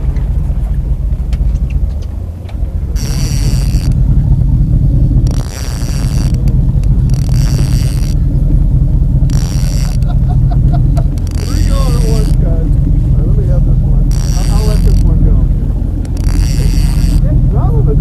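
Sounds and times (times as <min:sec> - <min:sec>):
boat engine rumbling: 0:00.0 - 0:18.0
fishing reel whirring: 0:02.9 - 0:04.2, 0:05.0 - 0:08.4, 0:09.2 - 0:12.7, 0:14.1 - 0:17.3.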